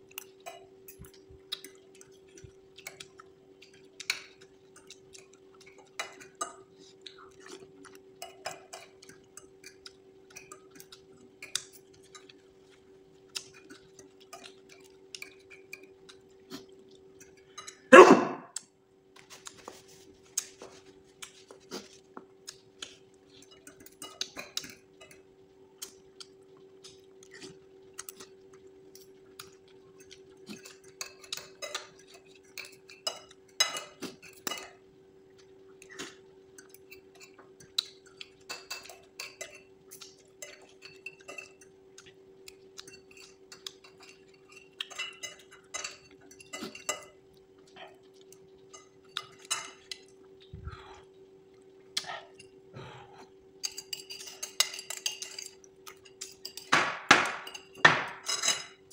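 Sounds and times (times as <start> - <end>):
steady low hum: 0.0 - 56.5
slurping and chewing: 0.1 - 17.9, 18.5 - 56.5
cutlery clinking on ceramic bowl: 53.6 - 58.9.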